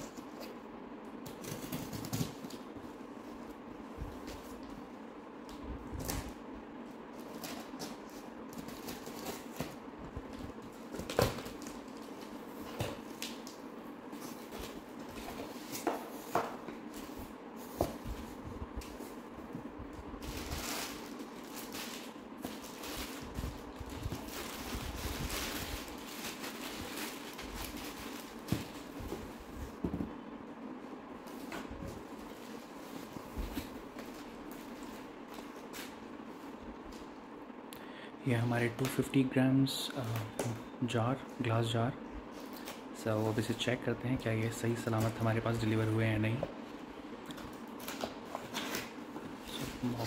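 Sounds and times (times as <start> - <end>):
steady low hum: 0.0 - 50.0
plastic packing rustling: 20.2 - 29.8.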